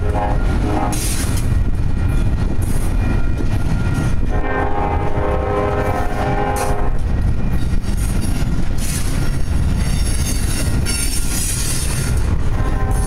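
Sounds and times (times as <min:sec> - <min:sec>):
steel wheels rumbling on rail: 0:00.0 - 0:13.0.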